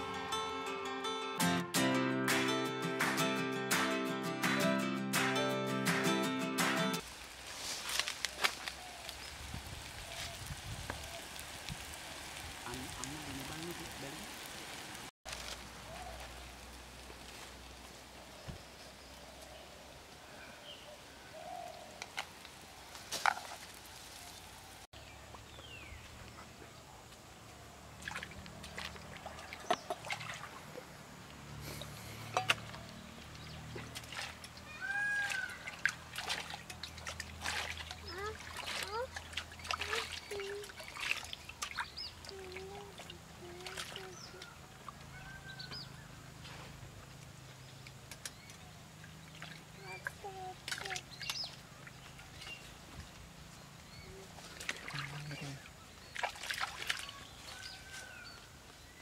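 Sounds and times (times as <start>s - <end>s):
water splashing and trickling: 7.0s - 20.2s, 21.6s - 26.3s, 27.6s - 46.1s, 46.7s - 58.6s
birds calling: 31.6s - 46.2s, 47.4s - 59.0s.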